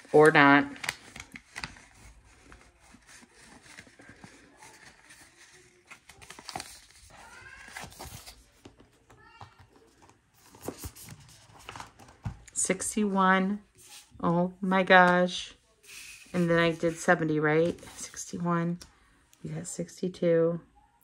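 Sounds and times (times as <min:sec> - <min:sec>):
paper money rustling: 0:00.0 - 0:09.0.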